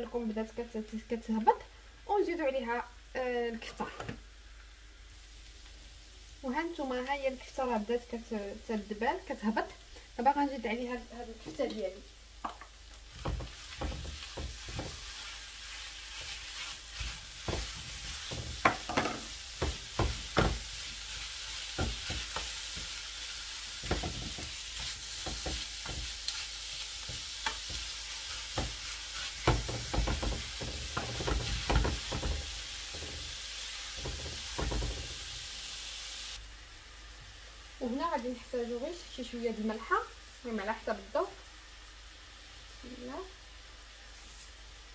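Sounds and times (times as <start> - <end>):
meat sizzling in a frying pan: 0.0 - 44.9
wooden spatula scraping pan: 13.1 - 35.4.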